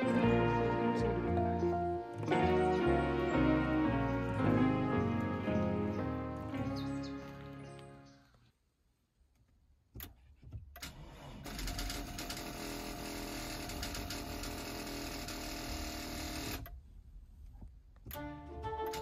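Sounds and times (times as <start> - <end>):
car starter motor cranking: 10.1 - 16.9.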